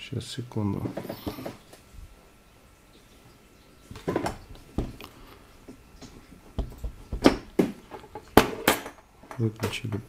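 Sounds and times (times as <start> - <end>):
soldering iron knocks and clicks: 6.5 - 8.8.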